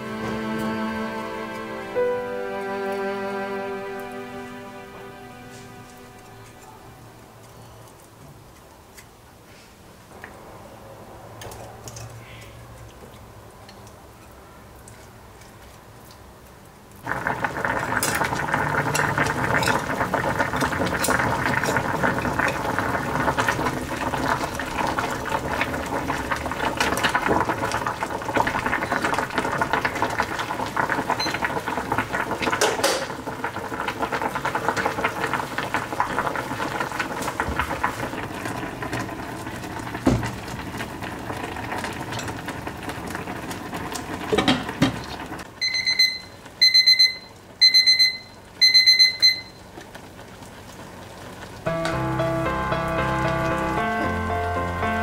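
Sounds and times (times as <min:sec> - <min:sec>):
liquid bubbling and crackling: 0:11.4 - 0:45.5, 0:49.5 - 0:51.7.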